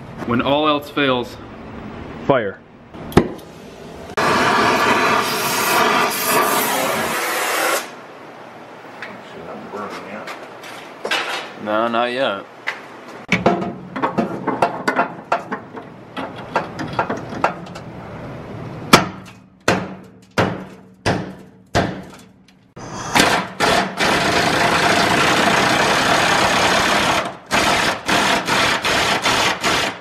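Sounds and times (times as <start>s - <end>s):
impact wrench running: 23.2s - 30.0s.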